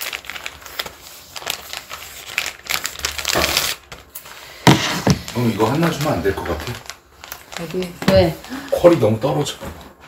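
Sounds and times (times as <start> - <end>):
material crinkling and rustling: 0.0 - 9.5.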